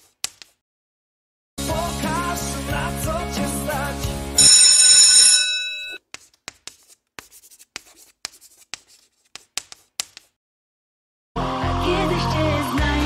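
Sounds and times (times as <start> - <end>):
bell ringing: 4.4 - 6.0
chalk scratching on blackboard: 6.0 - 10.4.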